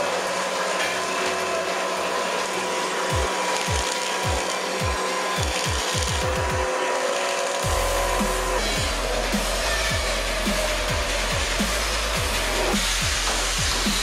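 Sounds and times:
cutter head milling log: 0:00.0 - 0:07.7
machine whine: 0:00.0 - 0:14.0.

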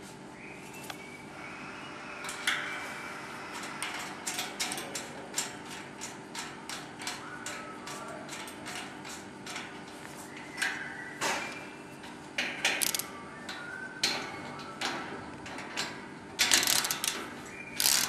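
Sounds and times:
ratchet clicking: 0:12.7 - 0:13.1, 0:16.4 - 0:17.2, 0:17.8 - 0:18.0.

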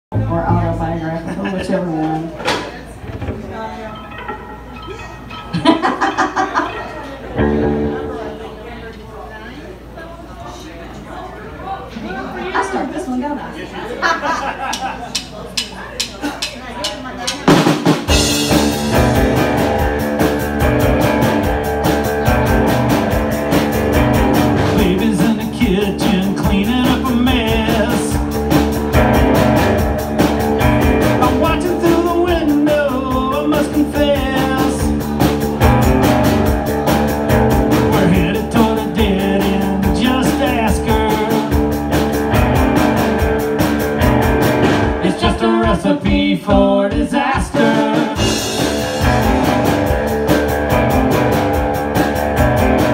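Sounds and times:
electric guitar: 0:07.4 - 0:08.6, 0:18.1 - 0:45.8, 0:47.6 - 0:52.9
drum kit: 0:14.7 - 0:52.9
man singing into microphone: 0:24.7 - 0:28.2, 0:31.2 - 0:35.0, 0:37.8 - 0:41.6, 0:45.0 - 0:48.4.

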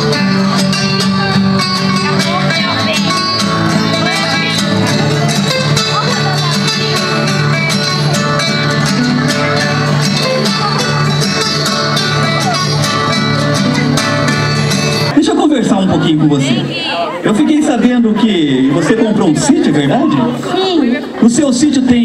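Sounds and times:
acoustic guitars strumming: 0:00.0 - 0:21.1.

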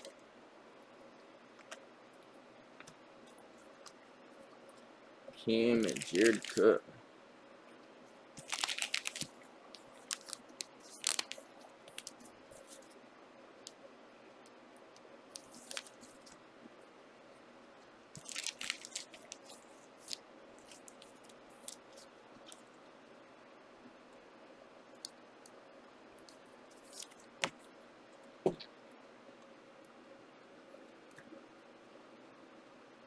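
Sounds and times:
card packs rustling: 0:05.7 - 0:06.8, 0:08.4 - 0:09.3, 0:09.9 - 0:12.9, 0:18.2 - 0:21.0.

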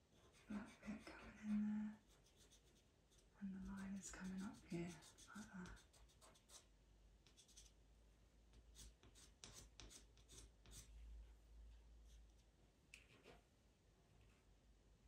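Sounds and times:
pencil scratching on paper: 0:00.0 - 0:07.7, 0:08.8 - 0:10.9.

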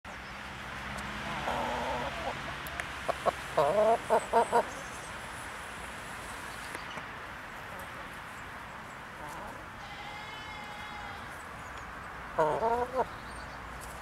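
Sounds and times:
steady background hiss: 0:00.2 - 0:14.0
hens clucking: 0:01.2 - 0:04.8, 0:12.4 - 0:13.1.

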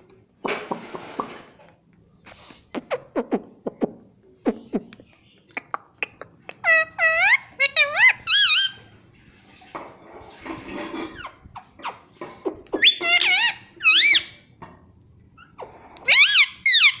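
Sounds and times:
parakeet squeaky calls: 0:06.6 - 0:08.8, 0:12.7 - 0:14.5, 0:15.4 - 0:17.0.

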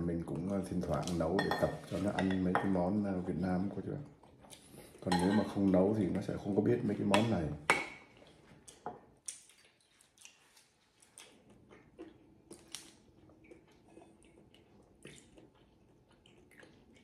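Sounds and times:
metal spoon tapping ceramic bowls: 0:05.1 - 0:05.6.

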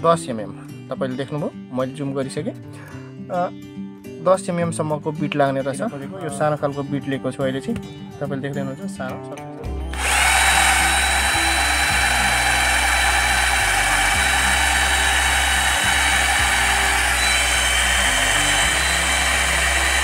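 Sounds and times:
cordless drill boring into wood: 0:09.9 - 0:20.0.

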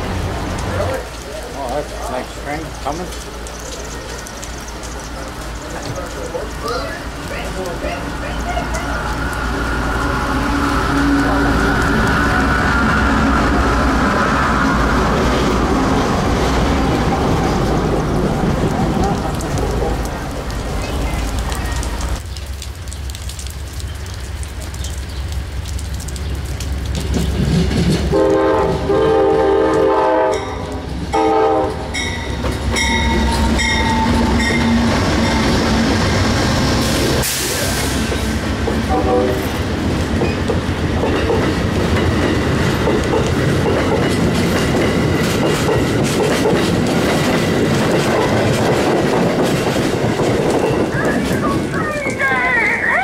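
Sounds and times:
train rumbling past: 0:00.0 - 0:22.2, 0:26.4 - 0:53.0
wheels clicking over rail joints: 0:18.4 - 0:28.9, 0:39.5 - 0:53.0
train horn blasts: 0:28.1 - 0:32.2, 0:38.8 - 0:39.6.

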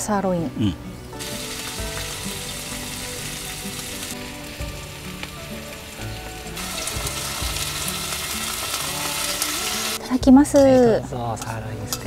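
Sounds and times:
steak sizzling: 0:00.7 - 0:10.1.

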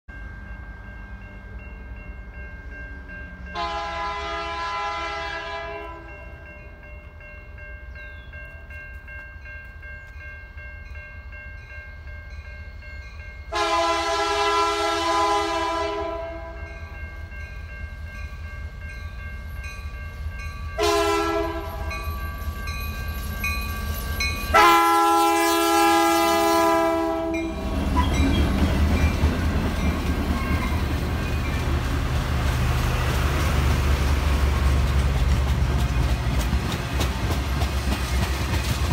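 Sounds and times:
locomotive air horn: 0:03.5 - 0:06.3, 0:13.5 - 0:16.7, 0:20.8 - 0:22.0, 0:24.5 - 0:28.2
train wheels rolling over rails: 0:27.5 - 0:38.9.

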